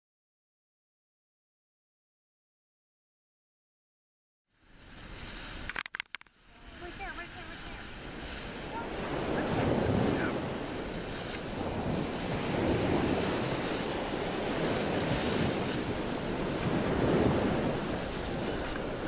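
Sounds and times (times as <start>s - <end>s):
wind rushing over microphone: 6.7s - 19.0s.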